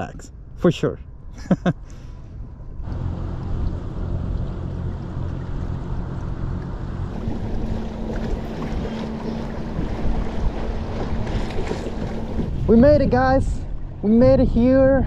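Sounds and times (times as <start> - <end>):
wind buffeting microphone: 2.4 - 15.0
water washing past kayak: 2.9 - 13.1.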